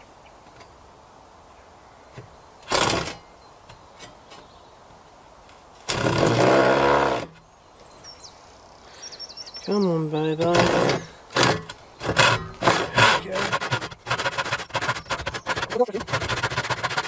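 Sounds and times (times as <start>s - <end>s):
power saw cutting wood: 2.7s - 3.2s, 5.9s - 7.4s, 10.4s - 17.0s.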